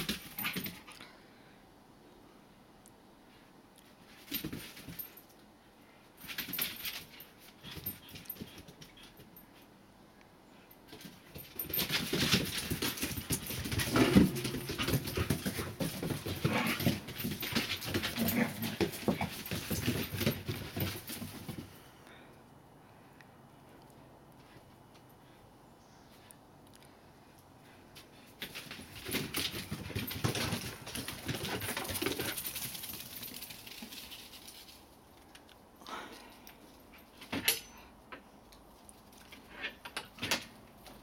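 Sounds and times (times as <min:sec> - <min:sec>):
paws scuffling on wooden deck: 0:10.9 - 0:21.8, 0:27.7 - 0:33.8
dogs vocalizing while play-fighting: 0:13.2 - 0:20.9.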